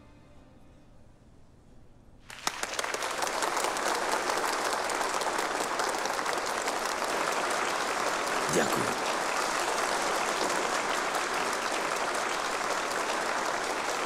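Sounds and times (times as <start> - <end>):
crowd applauding: 2.3 - 14.0.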